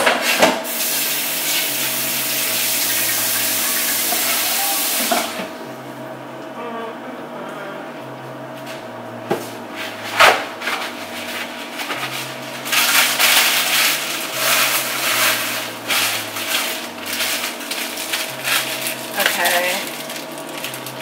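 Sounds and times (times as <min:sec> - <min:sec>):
plastic packaging crinkling: 0:10.9 - 0:21.0.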